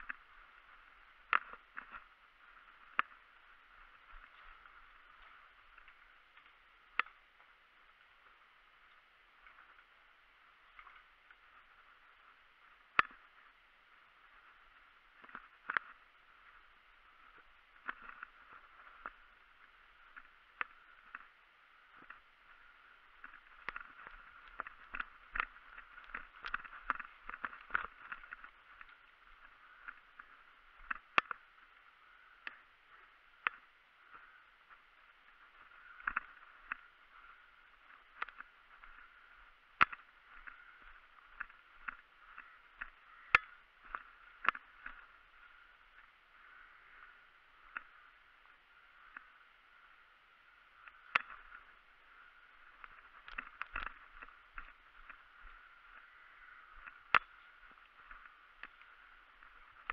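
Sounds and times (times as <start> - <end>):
footsteps on frozen grass and leaves: 0.0 - 59.9
sharp clicks and snaps: 12.9 - 13.3, 23.2 - 31.4, 39.8 - 45.1, 50.8 - 51.8, 52.5 - 55.6, 56.8 - 59.9.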